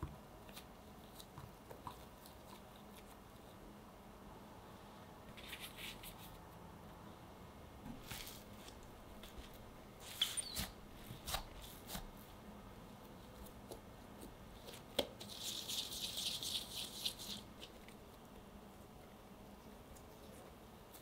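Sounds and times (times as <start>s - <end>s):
crackly rubbing of dough: 0.4s - 3.7s, 5.2s - 6.5s, 8.0s - 18.4s.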